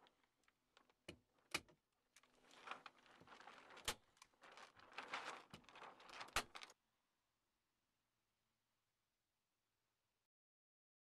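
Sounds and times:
foil crinkling and crackling: 0:02.2 - 0:06.8.

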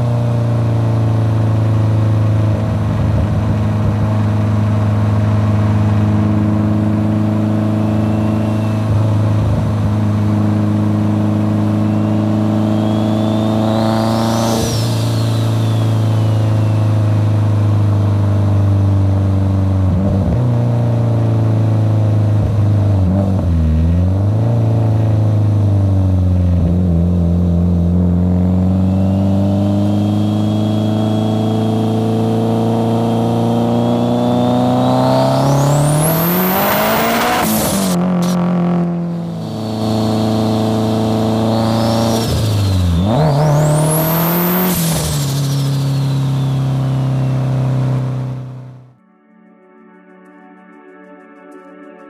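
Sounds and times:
car engine accelerating: 0:00.0 - 0:49.0
turbo whistle: 0:07.4 - 0:09.4, 0:11.5 - 0:17.6, 0:28.7 - 0:38.4, 0:39.1 - 0:48.6.

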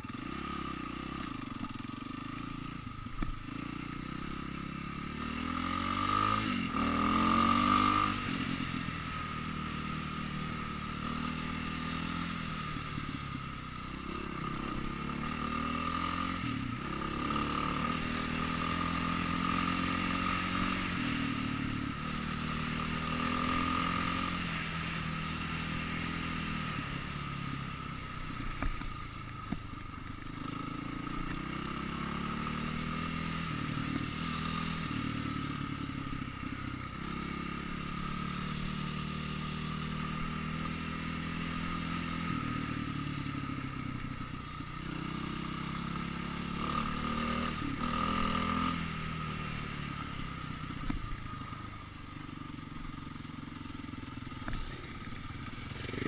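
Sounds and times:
dirt bike engine revving: 0:03.4 - 0:29.0, 0:30.3 - 0:36.2, 0:36.9 - 0:43.4, 0:44.8 - 0:51.0, 0:54.4 - 0:56.0.

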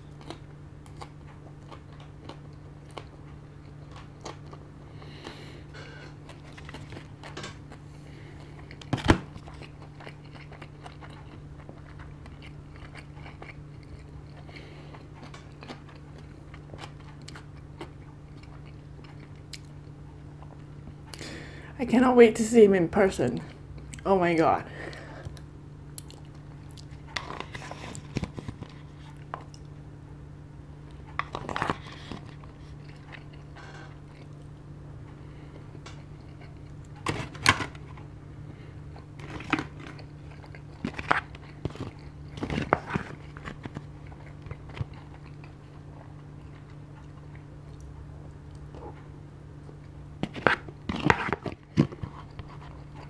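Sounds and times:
close chewing and biting: 0:00.0 - 0:20.7, 0:30.9 - 0:34.5, 0:35.4 - 0:49.1, 0:49.7 - 0:53.0
steady low hum: 0:00.0 - 0:53.0.

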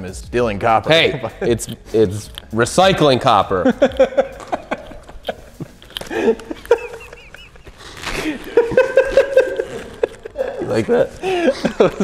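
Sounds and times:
men laughing: 0:01.0 - 0:01.9, 0:03.2 - 0:12.0.

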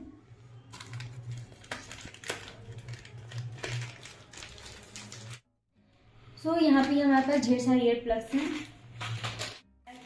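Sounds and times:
plastic packets crinkling: 0:00.7 - 0:05.5, 0:08.3 - 0:10.0.

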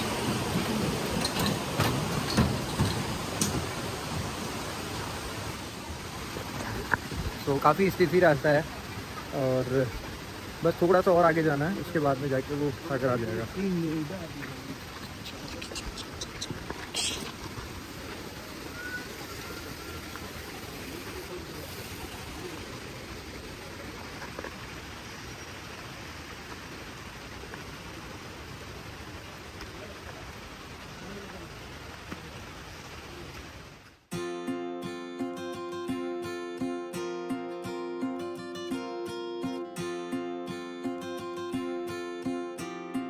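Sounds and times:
steady rushing hiss: 0:00.0 - 0:43.0.

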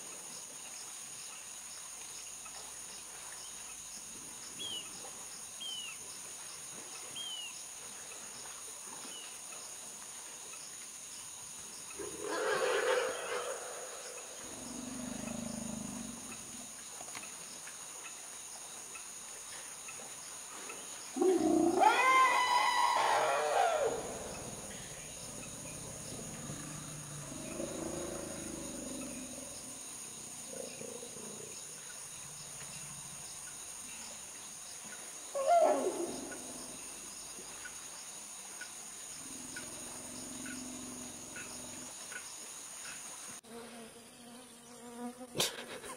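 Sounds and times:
elephant roar: 0:12.0 - 0:16.5, 0:21.2 - 0:29.7
elephant loud rising falling call: 0:21.2 - 0:24.9, 0:35.4 - 0:36.5
elephant deep low rumbles: 0:24.3 - 0:29.8.

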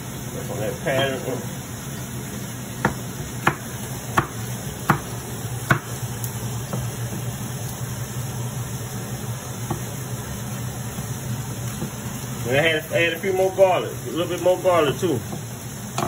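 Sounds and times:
knife chopping on cutting board: 0:02.8 - 0:06.0, 0:09.6 - 0:09.9.

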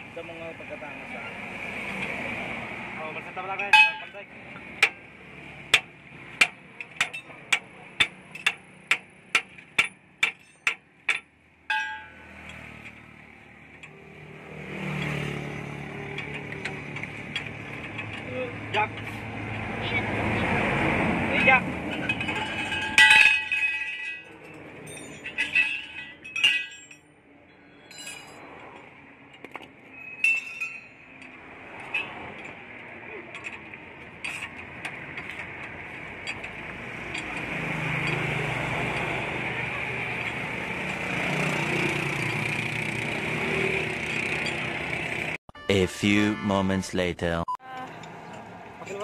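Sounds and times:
ringing metal clang: 0:03.6 - 0:04.2, 0:09.7 - 0:12.6, 0:21.9 - 0:28.5, 0:30.0 - 0:31.3
wrench clinking on metal: 0:06.4 - 0:13.1, 0:21.9 - 0:27.0, 0:27.7 - 0:28.9, 0:30.0 - 0:32.6.

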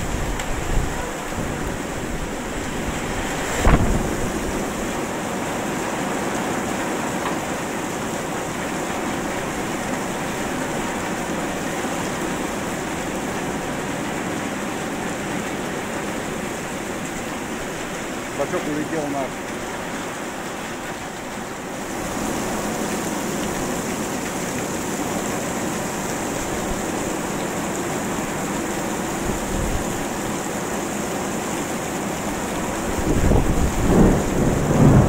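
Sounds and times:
heavy rain: 0:00.0 - 0:35.0
loud thunder bang: 0:03.6 - 0:04.4, 0:33.2 - 0:35.0.

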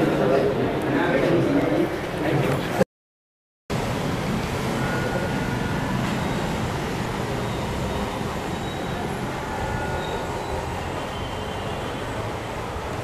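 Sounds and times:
faint high tones: 0:04.5 - 0:12.2.

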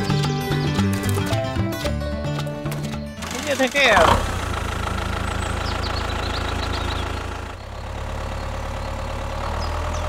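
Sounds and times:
tractor engine idling: 0:03.2 - 0:10.0.

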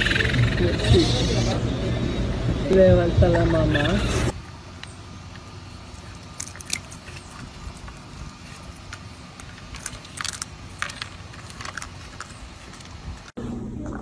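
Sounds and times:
low steady rumble: 0:00.0 - 0:14.0
raccoon chewing carrot crunches: 0:05.3 - 0:13.0.

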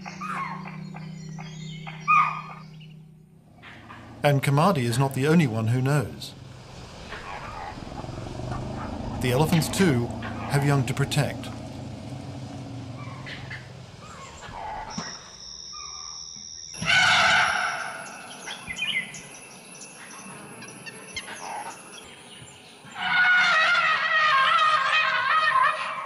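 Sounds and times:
elephants trumpeting: 0:03.3 - 0:15.0, 0:16.8 - 0:18.3, 0:22.9 - 0:26.0.

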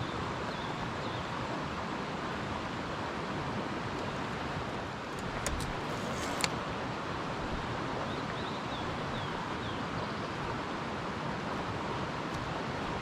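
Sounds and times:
steady rushing hiss: 0:03.7 - 0:07.4
sharp clicks: 0:05.2 - 0:06.6.

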